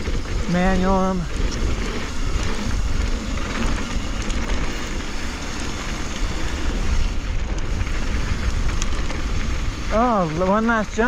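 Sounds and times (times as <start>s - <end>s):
bike tyres rolling over dirt: 0.0s - 11.0s
wind rushing over microphone: 0.0s - 11.0s
small clicks: 7.5s - 9.3s.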